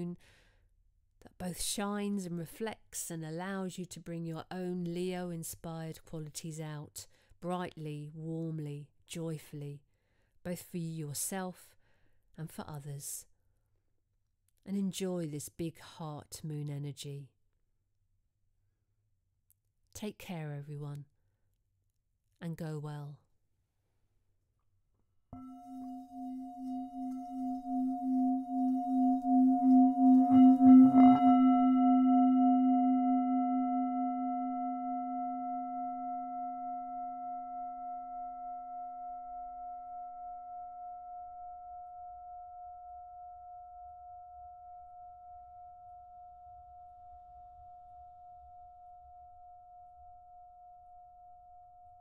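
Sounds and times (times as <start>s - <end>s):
singing bowl struck ringing: 25.4s - 44.2s
singing bowl rubbed humming: 25.4s - 52.0s.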